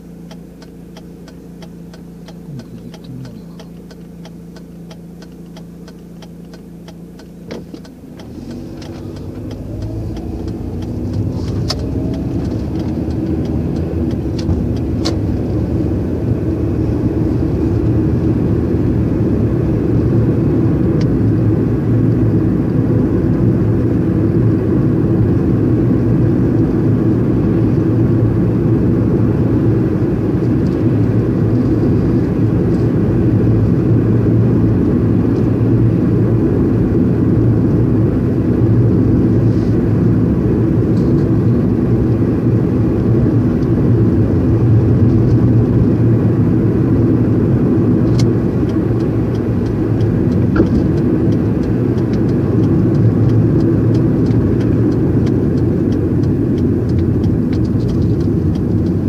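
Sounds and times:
car engine accelerating: 0.0 - 59.0
light ticks: 0.2 - 15.5, 48.1 - 59.0.

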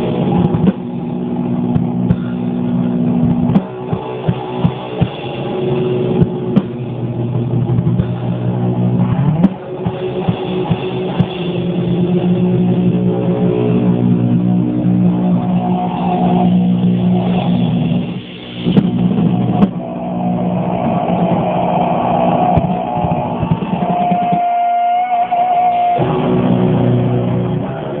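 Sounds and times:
distorted electric guitar chords: 0.0 - 28.0
sharp drum hits: 22.5 - 24.7.

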